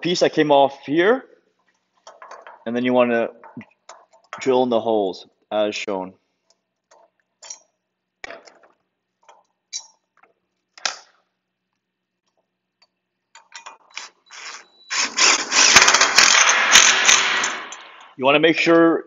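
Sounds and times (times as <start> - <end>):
drill trigger clicks: 13.8 - 18.1
cordless drill boring into steel: 13.9 - 17.9.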